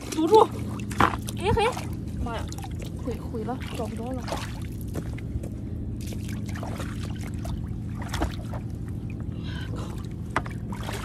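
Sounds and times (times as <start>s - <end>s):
steady low rumble: 0.0s - 11.0s
water splashing and trickling: 0.0s - 11.0s.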